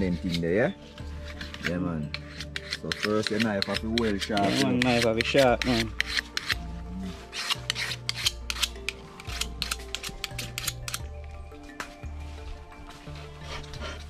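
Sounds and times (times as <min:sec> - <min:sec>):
knife scraping on steel blade: 0:01.2 - 0:06.6, 0:07.2 - 0:11.0.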